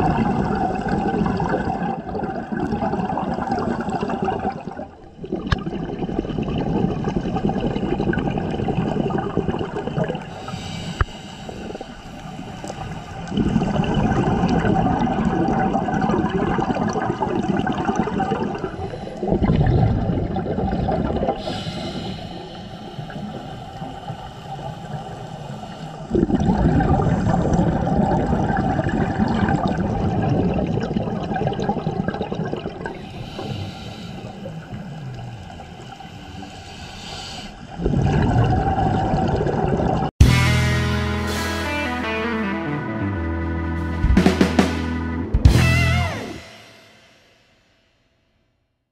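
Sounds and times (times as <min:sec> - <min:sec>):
diver breathing through regulator: 0:10.3 - 0:13.2, 0:21.4 - 0:26.2, 0:33.0 - 0:35.0, 0:36.0 - 0:37.8.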